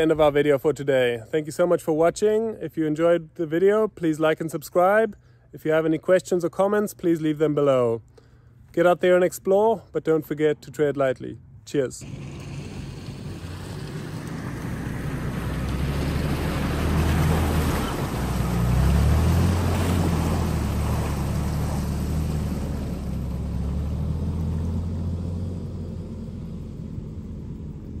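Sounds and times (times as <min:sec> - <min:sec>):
water splashing around tyres: 0:12.0 - 0:24.4
truck engine running: 0:12.0 - 0:28.0.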